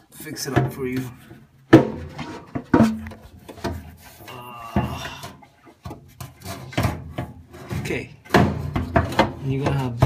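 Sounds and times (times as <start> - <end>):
knocks on sheet metal panels: 1.7 - 3.1, 8.3 - 10.0.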